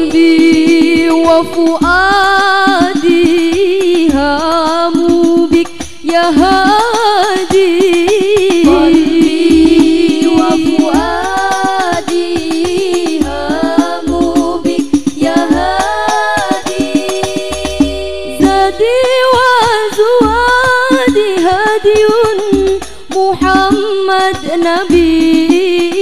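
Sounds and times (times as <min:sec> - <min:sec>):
frame drums beating: 0:00.0 - 0:26.0
women singing together: 0:00.0 - 0:26.0
bass drum thumps: 0:07.5 - 0:22.8.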